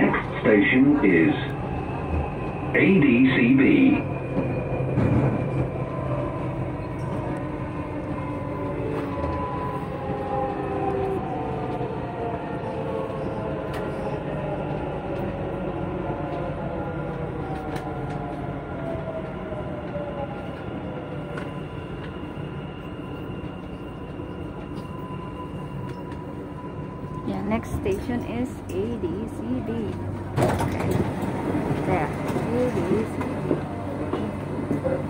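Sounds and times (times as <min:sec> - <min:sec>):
train rumble with motor whine: 0:00.0 - 0:35.0.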